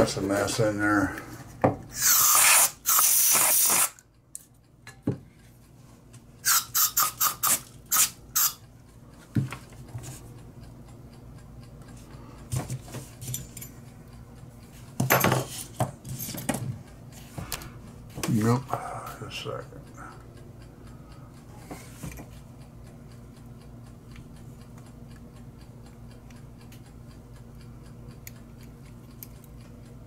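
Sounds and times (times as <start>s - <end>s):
butane lighter hissing: 1.9s - 4.0s, 6.4s - 8.6s.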